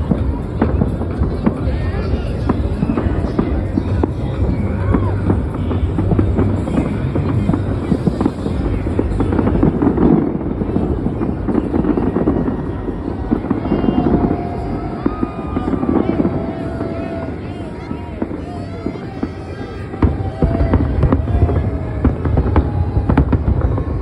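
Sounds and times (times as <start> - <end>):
fireworks bangs and crackle: 0.0 - 24.0
fireworks whistling: 0.0 - 24.0.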